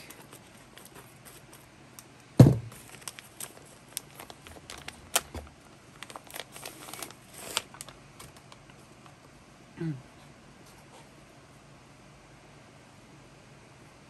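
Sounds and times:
plastic packaging crinkling: 0.0s - 1.7s, 2.5s - 9.1s
sharp thump: 2.4s - 2.7s.

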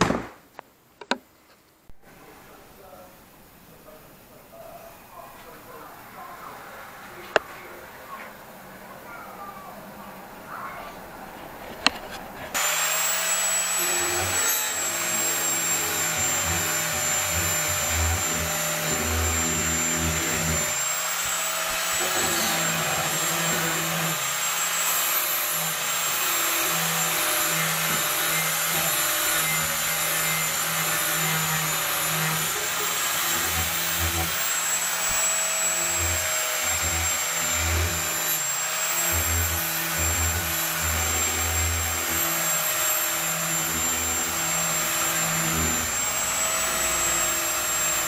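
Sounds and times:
angle grinder grinding steel: 11.8s - 48.0s.

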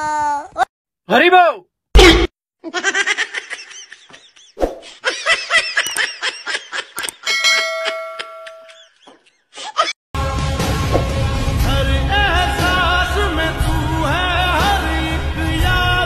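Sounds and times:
young men laughing: 2.7s - 9.9s
bell-like chime: 7.2s - 8.9s.

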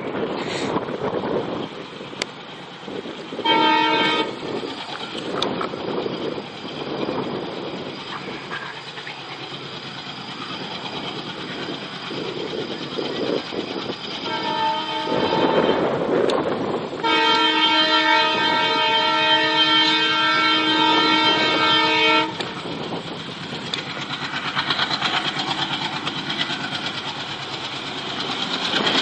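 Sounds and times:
diesel locomotive rumbling: 0.0s - 29.0s
train horn blast: 3.4s - 4.4s, 14.2s - 16.0s, 17.0s - 22.6s.

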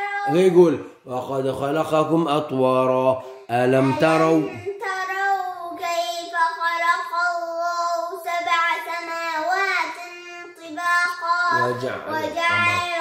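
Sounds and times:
boy chanting melodic recitation: 3.2s - 13.0s.

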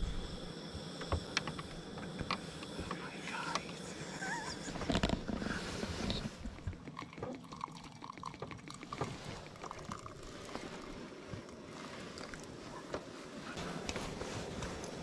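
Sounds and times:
liquid pouring into a mug: 5.6s - 12.6s.

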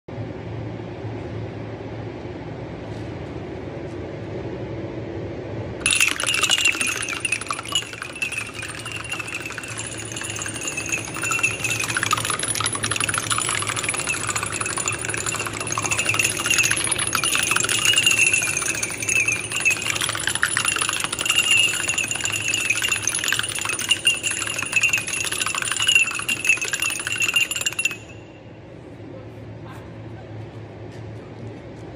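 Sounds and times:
glasses clinking while toppling: 5.8s - 28.3s
steady high-pitched tone: 5.8s - 28.6s.

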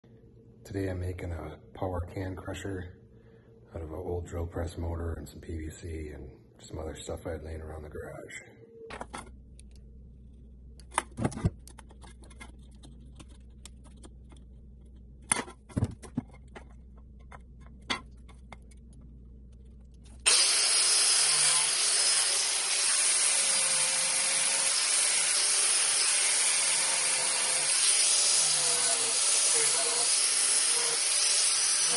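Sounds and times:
low hum: 7.4s - 20.3s
angle grinder cutting plastic pipe: 20.2s - 31.9s.

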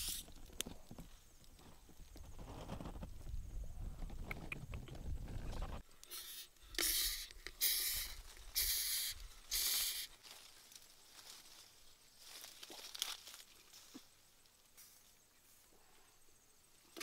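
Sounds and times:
beetles hissing: 0.0s - 0.4s, 5.8s - 10.2s.

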